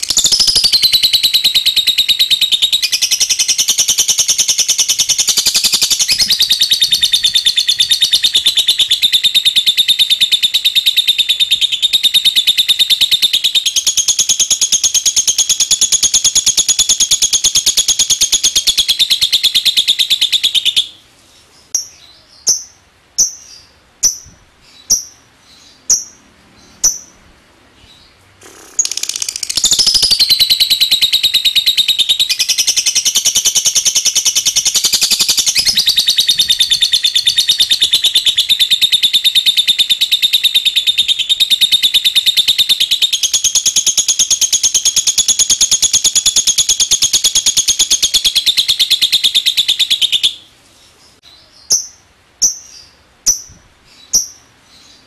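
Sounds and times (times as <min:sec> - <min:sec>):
bird fast high-pitched trill: 0:00.0 - 0:21.0, 0:28.4 - 0:50.4.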